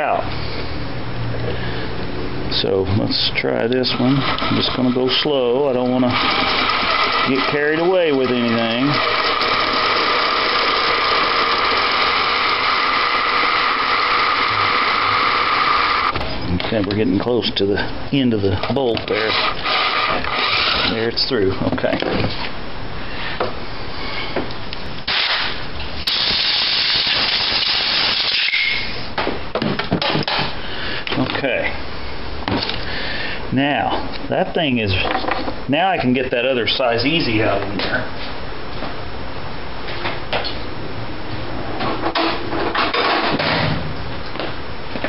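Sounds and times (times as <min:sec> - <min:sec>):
steady background noise: 0:00.0 - 0:45.0
compressed air hissing: 0:25.1 - 0:29.0.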